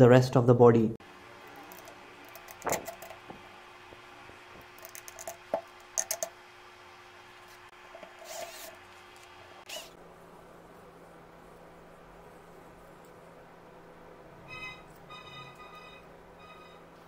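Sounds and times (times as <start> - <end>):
small metal parts clicking: 1.6 - 3.3, 4.7 - 6.4.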